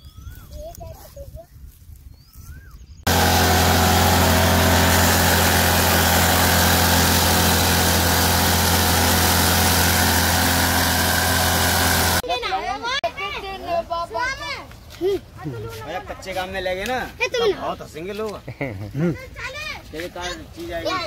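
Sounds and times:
small petrol engine running: 3.1 - 12.2.

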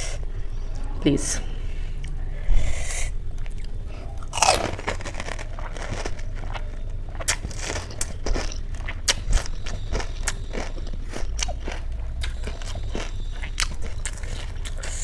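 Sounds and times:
crunchy food being chewed: 3.3 - 15.0.

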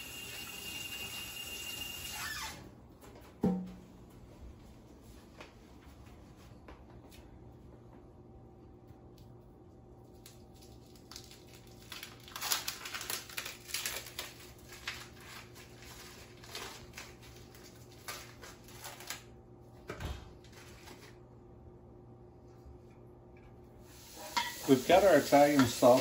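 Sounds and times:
plastic wrap crinkling: 10.0 - 19.4.

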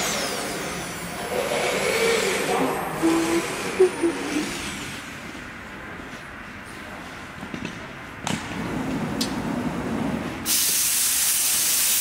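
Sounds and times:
compressed air blow gun hissing: 10.5 - 12.0.

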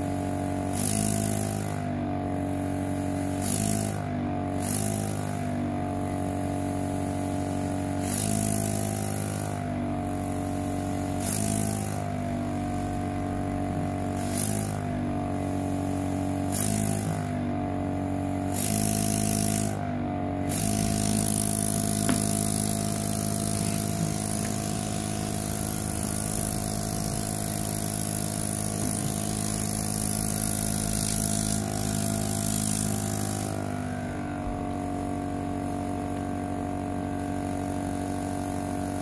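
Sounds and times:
air pump humming: 0.0 - 39.0
air hissing: 6.0 - 17.3, 20.4 - 39.0.

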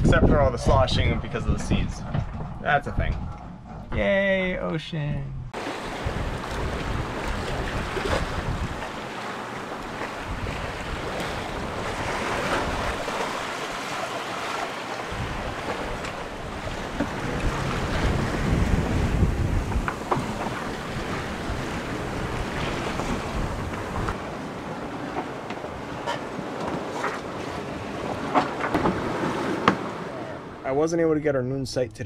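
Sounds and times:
wind buffeting microphone: 0.0 - 4.0, 5.4 - 30.7
ocean waves breaking: 5.5 - 30.9.

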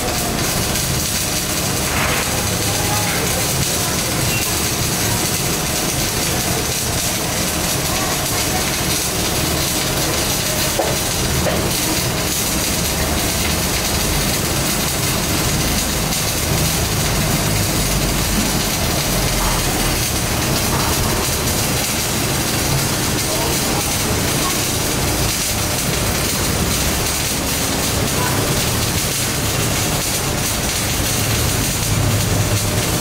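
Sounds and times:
machinery hiss: 0.0 - 6.6.

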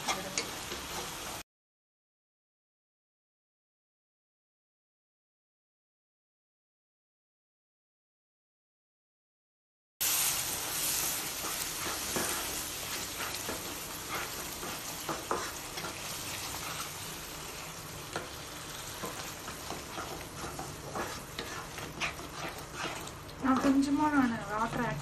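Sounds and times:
masala sizzling in oil: 0.0 - 1.4, 10.0 - 25.0
spatula scraping and tapping pan: 0.0 - 1.4, 11.1 - 17.1, 18.0 - 25.0.

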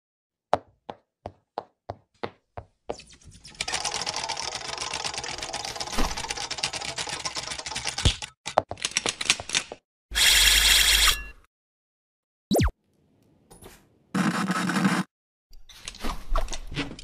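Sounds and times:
sharp cartoon clicks: 12.5 - 12.7.

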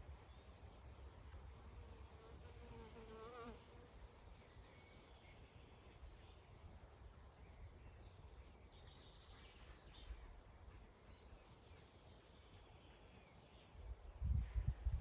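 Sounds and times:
wind on microphone: 14.1 - 15.0.

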